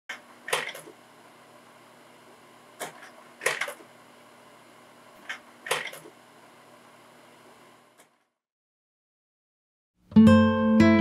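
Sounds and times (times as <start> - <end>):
slide projector changing slides: 0.1 - 1.0, 2.8 - 4.0, 5.2 - 6.2.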